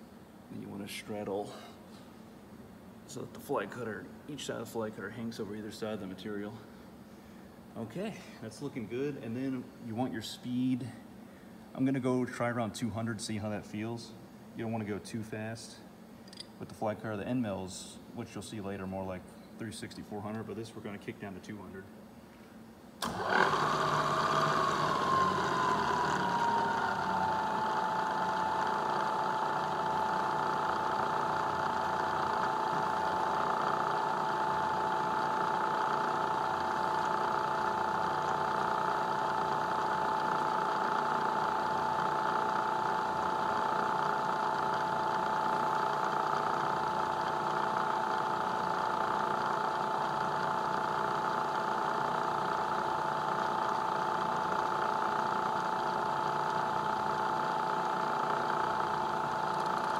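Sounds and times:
milling machine hum and whine: 0:23.0 - 0:59.9.

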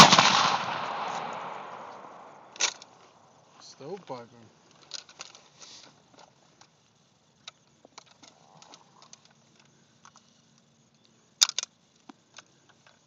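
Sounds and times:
sharp metallic clacks of rifle bolt: 0:01.9 - 0:03.0, 0:11.4 - 0:11.7
faint rifle clicks and rattles: 0:03.8 - 0:13.0.

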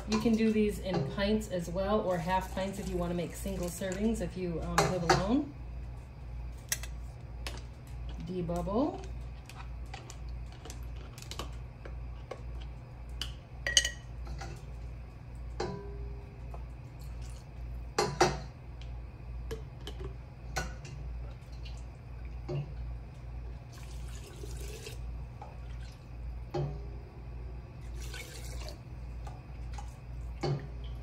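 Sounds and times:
steady low hum: 0:00.0 - 0:31.0
liquid pouring splash: 0:23.7 - 0:25.0, 0:27.8 - 0:28.8.

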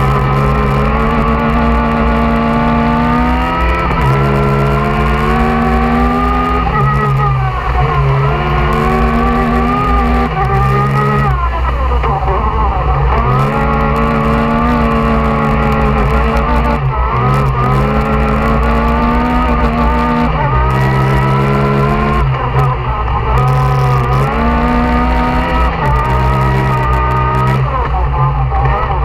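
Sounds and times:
engine revving hard: 0:00.0 - 0:29.0.

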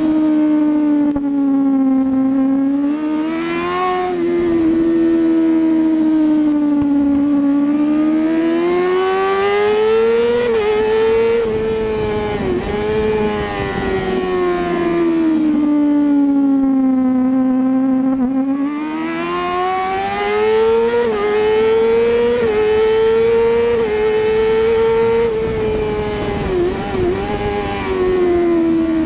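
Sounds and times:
motorcycle engine at high revs: 0:00.0 - 0:29.0
wind rush: 0:09.4 - 0:15.7, 0:22.3 - 0:29.0.

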